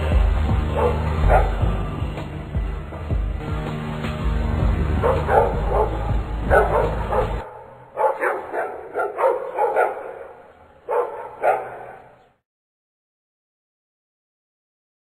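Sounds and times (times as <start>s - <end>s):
background music: 0.0s - 12.4s
dog barking: 0.6s - 1.7s, 4.9s - 12.4s.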